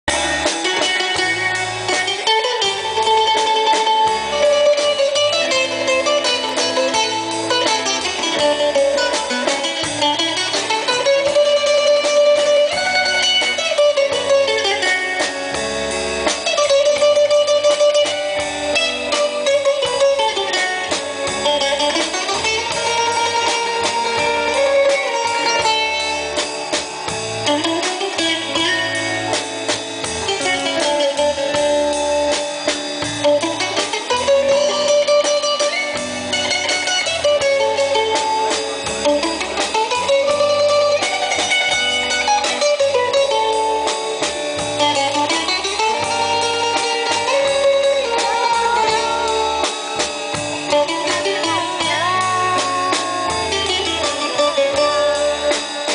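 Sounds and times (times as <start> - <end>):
drum kit beat: 0.0 - 55.9
electric bass: 0.0 - 55.9
electric guitar: 0.0 - 55.9
bouzouki melody: 0.1 - 55.9.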